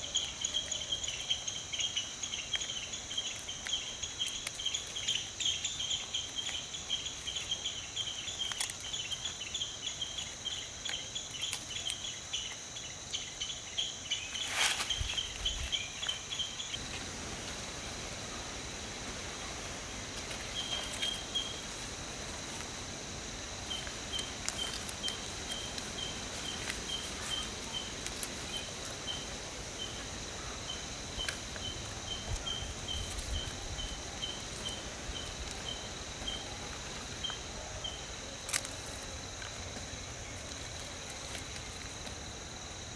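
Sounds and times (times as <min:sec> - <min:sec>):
insects droning: 0:00.0 - 0:42.9
repeating insect chirp: 0:00.0 - 0:42.9
banana leaf crinkling: 0:08.2 - 0:09.4, 0:14.2 - 0:17.8, 0:19.8 - 0:22.8, 0:23.6 - 0:29.4, 0:38.3 - 0:42.3.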